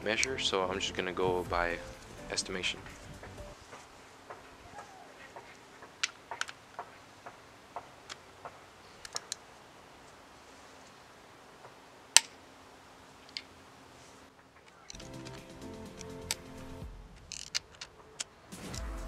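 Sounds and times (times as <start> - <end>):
construction hammering: 1.3 - 9.2.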